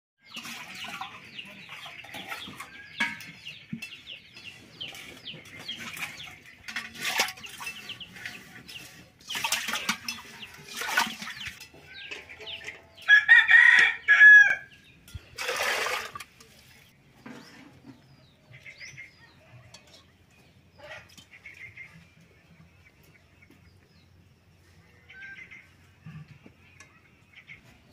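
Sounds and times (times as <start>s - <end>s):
metal pots clinking and scraping: 0.2s - 23.6s, 24.8s - 27.9s
chickens clucking: 0.3s - 15.4s, 16.3s - 27.9s
rooster crowing: 13.1s - 14.7s.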